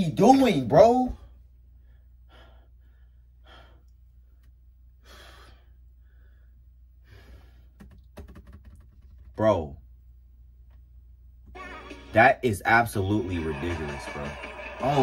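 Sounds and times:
steady low hum: 0.0 - 8.2, 8.8 - 11.5.

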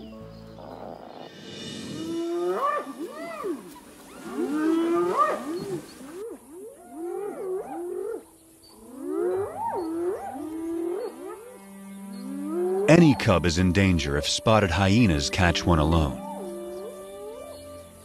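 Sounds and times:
hyenas whooping: 2.0 - 11.5.

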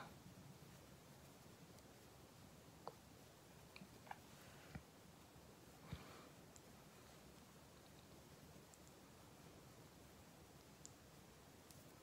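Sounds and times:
faint small clicks: 6.5 - 6.7, 7.8 - 9.0, 10.5 - 11.0, 11.6 - 12.0.

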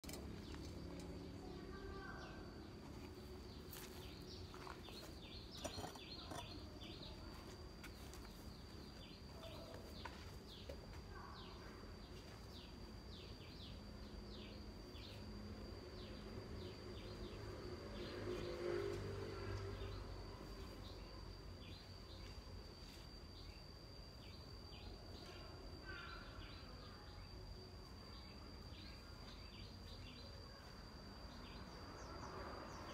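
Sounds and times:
birds chirping: 0.0 - 7.3
high-pitched insect drone: 11.4 - 32.9.

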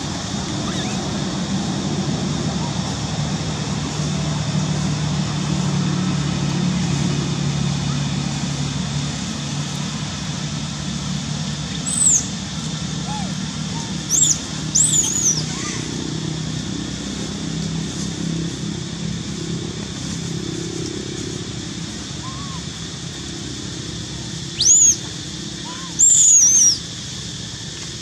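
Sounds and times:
infant monkey squealing: 0.6 - 1.1, 11.8 - 12.3, 13.0 - 16.0, 22.2 - 22.6, 24.6 - 25.0, 25.6 - 26.8.

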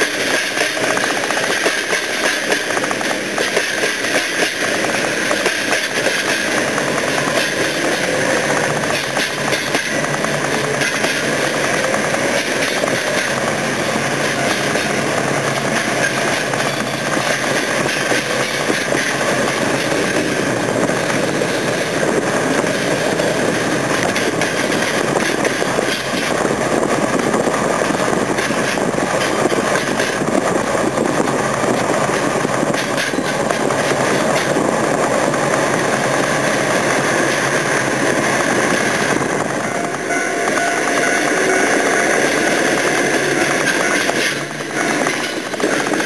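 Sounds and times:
freight train rumbling: 0.0 - 46.0
car road and wind noise: 0.2 - 46.0.

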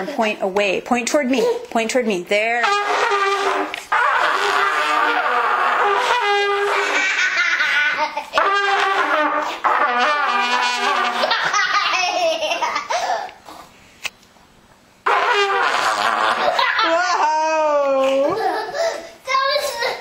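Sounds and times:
children blowing trumpets: 2.6 - 11.6, 15.0 - 16.9
children laughing: 6.6 - 8.4, 11.0 - 13.4, 16.3 - 20.0.

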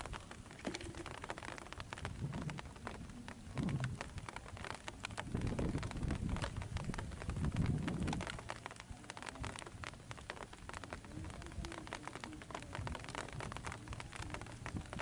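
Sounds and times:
faint crackles and ticks: 0.0 - 15.0.

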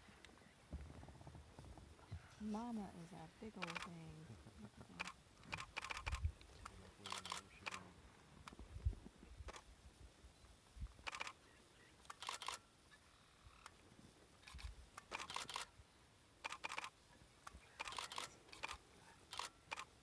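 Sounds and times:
camera shutter bursts: 3.6 - 4.0, 5.0 - 6.2, 7.0 - 7.8, 11.0 - 11.4, 12.0 - 12.6, 14.4 - 15.8, 16.4 - 17.0, 17.8 - 19.9.

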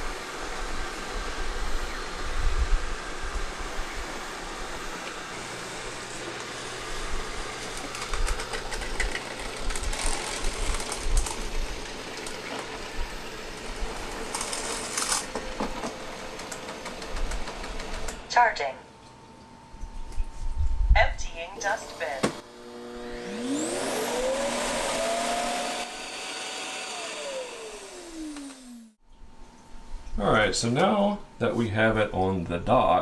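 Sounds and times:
robot vacuum motors whirring: 0.0 - 18.3, 21.6 - 29.0.

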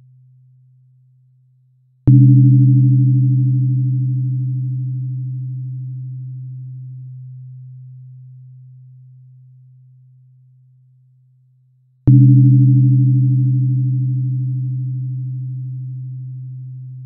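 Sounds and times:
tuning fork strike click: 2.1 - 6.6, 12.1 - 17.0
tuning fork humming: 2.1 - 10.6, 12.1 - 17.0.

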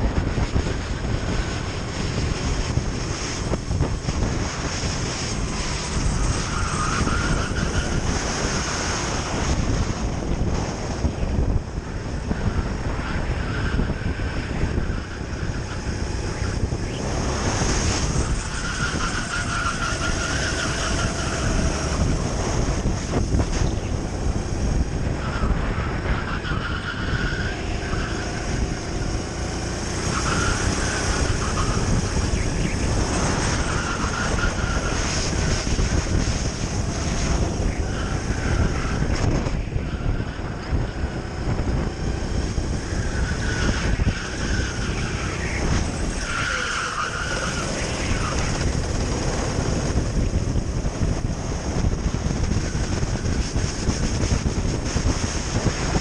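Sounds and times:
kart engine racing: 0.0 - 56.0
wind buffeting microphone: 0.0 - 56.0.

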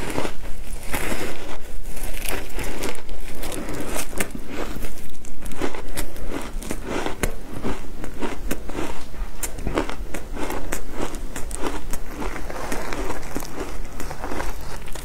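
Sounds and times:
ice crunching: 0.0 - 9.0, 10.5 - 15.0.

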